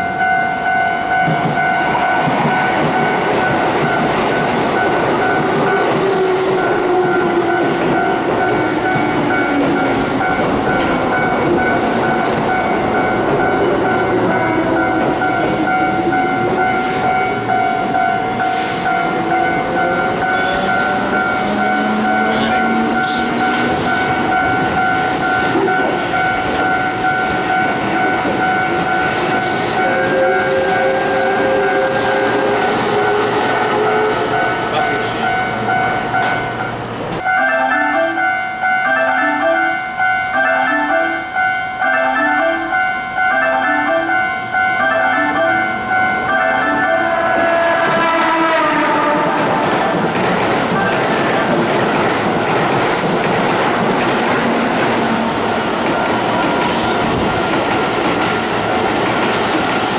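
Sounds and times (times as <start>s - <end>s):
high ringing tone: 0.0s - 5.9s, 6.6s - 47.4s
wheels clattering over rail joints: 49.0s - 59.9s.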